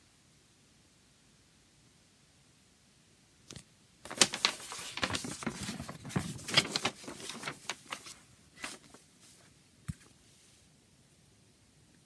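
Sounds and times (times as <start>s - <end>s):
paper poster crinkling: 4.1s - 9.5s.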